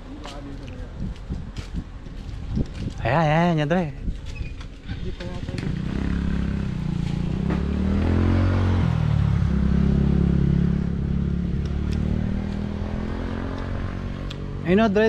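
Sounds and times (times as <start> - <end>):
vehicle engine accelerating: 4.8 - 15.0.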